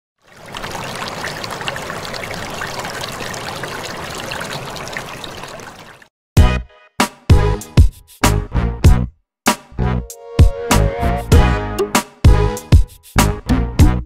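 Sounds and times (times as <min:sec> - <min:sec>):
rushing trickling noise: 0:00.2 - 0:06.1.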